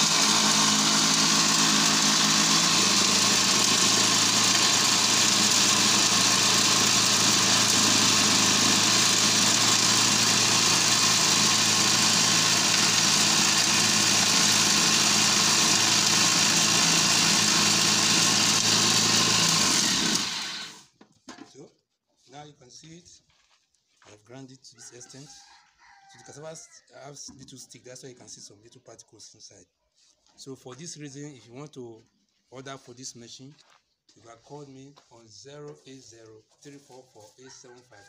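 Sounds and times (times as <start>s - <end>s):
grinding machine whine: 0.0s - 20.8s.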